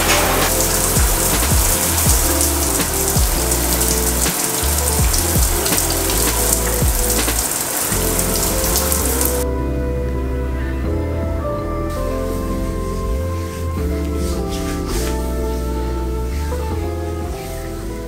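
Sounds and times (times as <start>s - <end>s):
shower spray hissing: 0.0s - 9.4s
soft background music: 0.0s - 18.0s.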